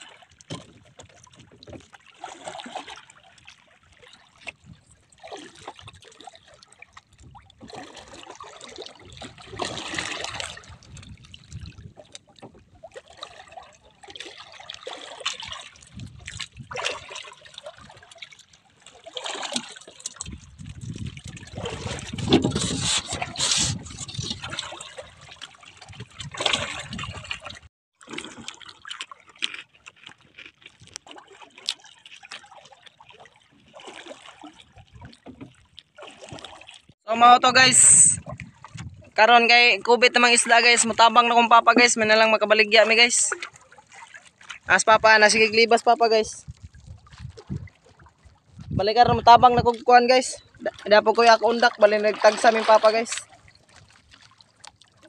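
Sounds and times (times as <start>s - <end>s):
water lapping against boat hull: 0.0s - 55.0s.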